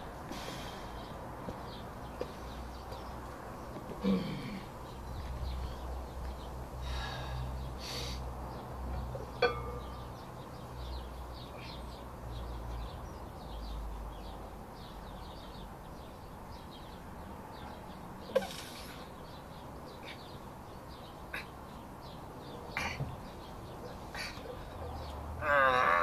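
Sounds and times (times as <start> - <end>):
barbell plates clanking: 9.2 - 10.1.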